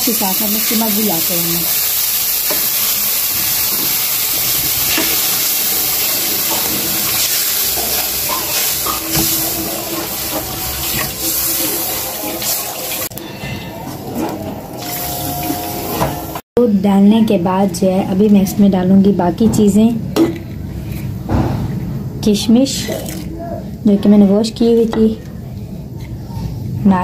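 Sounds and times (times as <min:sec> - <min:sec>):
milk hissing in hot pan: 0:00.0 - 0:13.1
wooden spoon stirring: 0:02.4 - 0:13.1.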